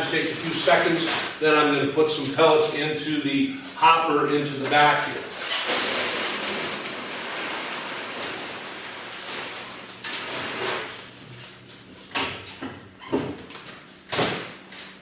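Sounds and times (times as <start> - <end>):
wood pellets pouring from a bag: 5.7 - 9.9.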